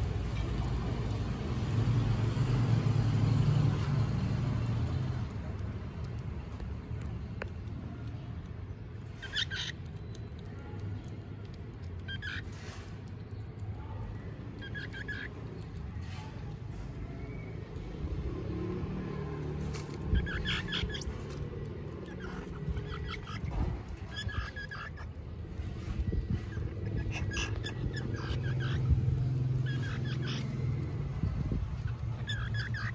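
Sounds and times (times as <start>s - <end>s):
baby squirrels squeaking: 9.0s - 10.6s, 11.9s - 12.8s, 14.2s - 16.6s, 19.6s - 32.9s.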